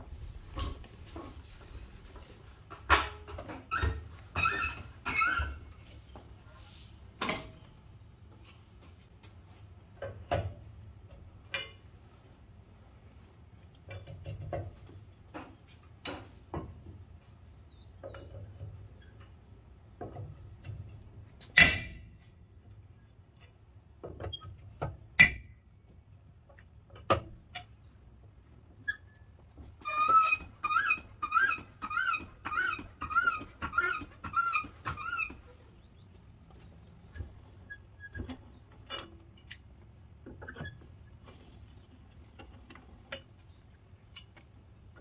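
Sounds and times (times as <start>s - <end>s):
jack handle squeaking: 3.0s - 6.1s, 28.5s - 41.6s.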